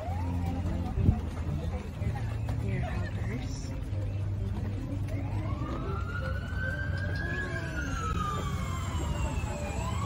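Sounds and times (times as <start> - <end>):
emergency siren wailing: 0.0 - 1.0, 5.0 - 10.0
low rumble of traffic: 0.0 - 10.0.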